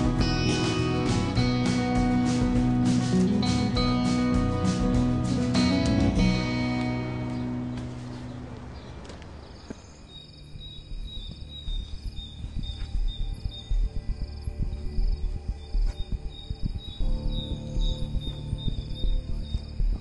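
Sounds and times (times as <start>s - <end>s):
acoustic guitar music: 0.0s - 8.5s
crickets chirping: 6.4s - 20.0s
low thuds: 10.5s - 20.0s.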